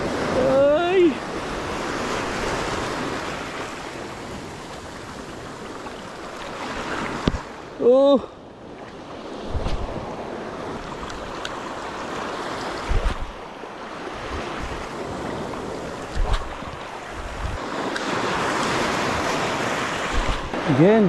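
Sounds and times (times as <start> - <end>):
sea waves washing over rocks: 0.0 - 21.0
wind bumps on microphone: 9.4 - 10.2, 12.8 - 13.4, 16.0 - 17.8, 19.0 - 20.7.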